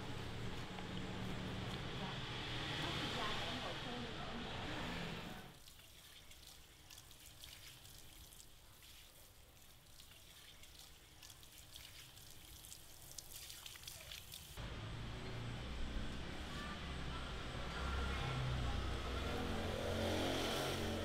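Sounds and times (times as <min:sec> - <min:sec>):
water drips: 0:00.5 - 0:02.0, 0:05.5 - 0:14.6
shower sprayer water trickling: 0:05.6 - 0:14.6.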